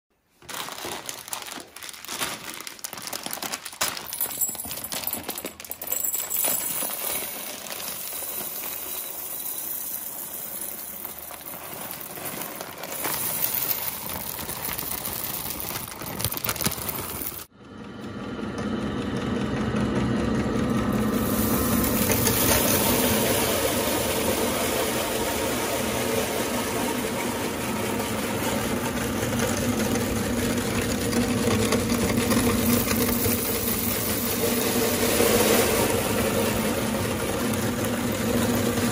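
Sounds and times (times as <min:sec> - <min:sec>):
plastic bag crinkling: 0:00.3 - 0:17.5
grinder crushing coffee beans: 0:00.4 - 0:17.5, 0:19.9 - 0:38.9
coffee beans clattering: 0:00.5 - 0:17.5, 0:21.0 - 0:26.5, 0:31.0 - 0:38.6.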